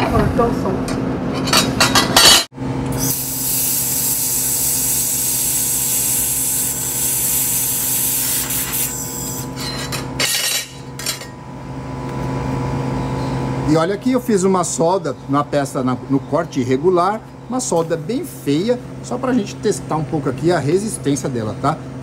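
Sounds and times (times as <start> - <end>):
laser welder hissing: 2.9 - 9.5.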